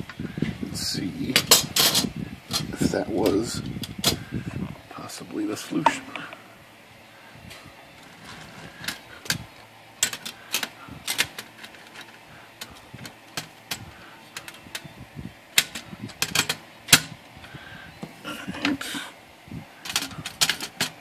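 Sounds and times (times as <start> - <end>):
typewriter carriage metal clacks: 15.6 - 17.1, 19.8 - 21.0.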